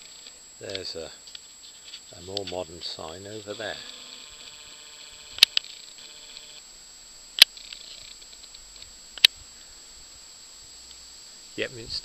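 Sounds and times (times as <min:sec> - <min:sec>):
faint steady hiss: 0:00.0 - 0:12.0
sharp clicks: 0:03.4 - 0:06.6, 0:07.4 - 0:09.4.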